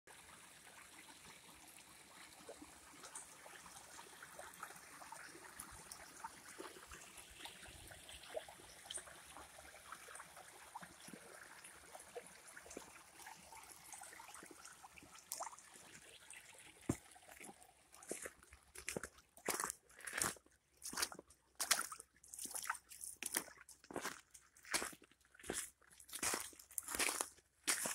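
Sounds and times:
creek trickling over stones: 0:00.1 - 0:27.9.

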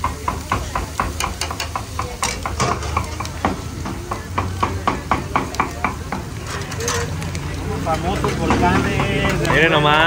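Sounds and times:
metal spatula clinking on griddle: 0:00.1 - 0:03.4, 0:05.5 - 0:07.2.

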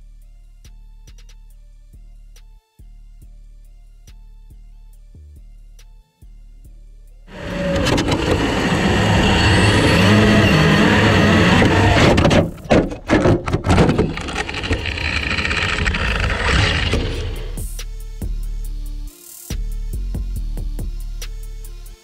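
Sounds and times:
rapid knocks: 0:07.3 - 0:17.7
electric motor whine: 0:07.3 - 0:17.8
tyre and wind noise: 0:07.3 - 0:17.8.

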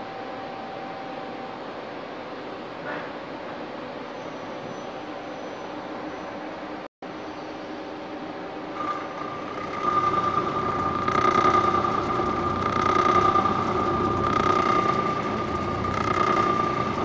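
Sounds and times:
high whine of tool cutting metal: 0:08.8 - 0:17.0
lathe running: 0:08.8 - 0:17.0.

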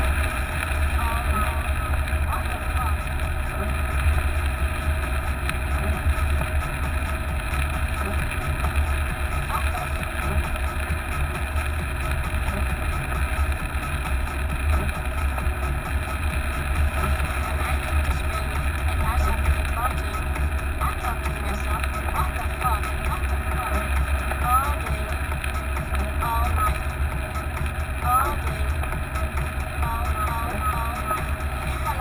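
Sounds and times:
engine and road rumble: 0:00.0 - 0:32.0.

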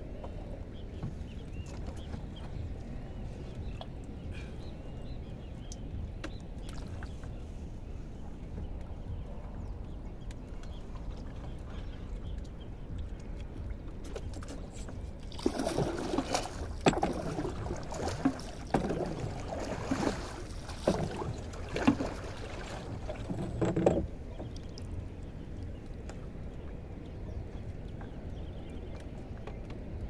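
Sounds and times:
low wind rumble: 0:00.0 - 0:30.0
water splashing: 0:14.2 - 0:24.8.

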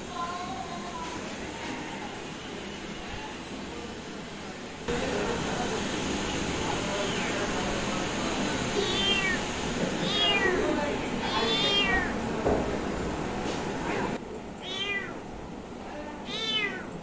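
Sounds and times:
kitten meowing: 0:08.8 - 0:09.4, 0:10.0 - 0:10.6, 0:11.2 - 0:12.2, 0:14.6 - 0:15.2, 0:16.3 - 0:16.9.

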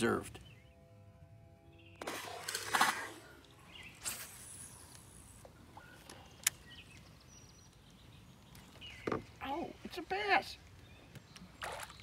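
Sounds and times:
small splash: 0:02.0 - 0:03.2, 0:11.6 - 0:12.0.

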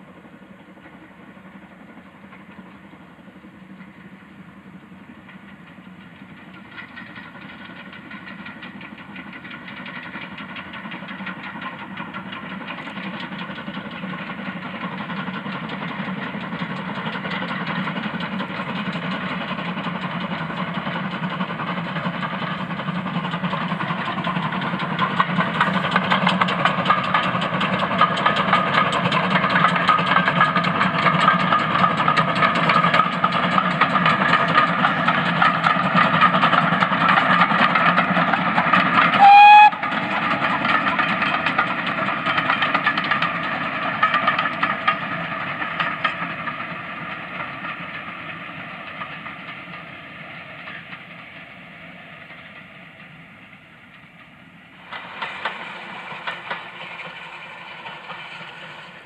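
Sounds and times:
rolling of train coaches: 0:00.0 - 0:59.0
steam locomotive working: 0:00.0 - 0:59.0
steam whistle blast: 0:39.1 - 0:40.0.

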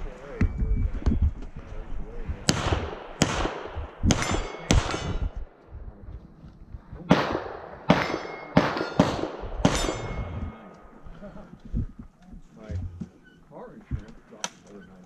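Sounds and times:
rifle shots: 0:02.4 - 0:05.5, 0:07.1 - 0:10.4
steel plate ringing: 0:04.1 - 0:05.4, 0:07.9 - 0:10.6.

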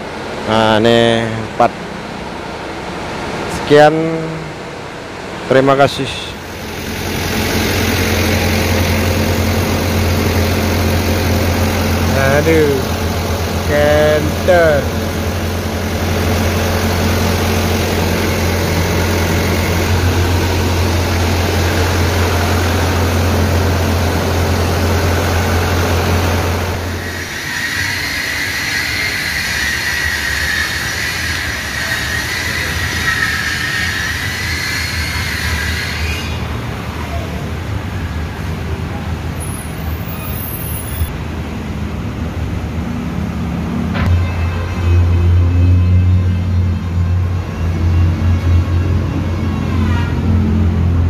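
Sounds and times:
wavering high whine: 0:05.8 - 0:36.5
car engine idling: 0:06.4 - 0:27.0.

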